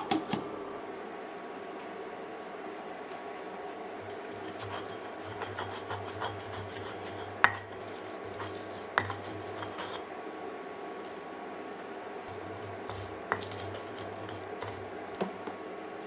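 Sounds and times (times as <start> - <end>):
steady low hum: 0.0 - 16.0
stone pestle grinding in mortar: 4.0 - 10.1, 12.3 - 14.9.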